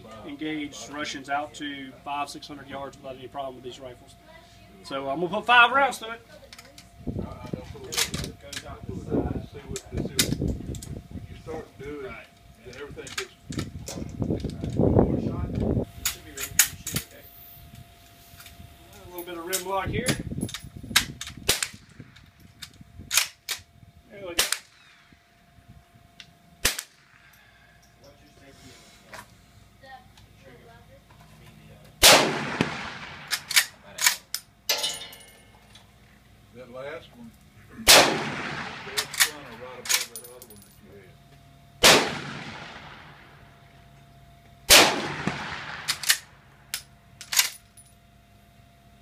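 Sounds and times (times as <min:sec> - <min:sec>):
sharp gunshots: 0:21.4 - 0:22.0, 0:24.4 - 0:25.1, 0:26.6 - 0:27.3, 0:32.0 - 0:34.2, 0:37.8 - 0:39.4, 0:41.8 - 0:43.3, 0:44.7 - 0:46.3
rifle shots: 0:24.4 - 0:25.1, 0:26.6 - 0:27.2, 0:32.0 - 0:34.2, 0:37.8 - 0:40.0, 0:41.8 - 0:43.3, 0:44.7 - 0:46.3.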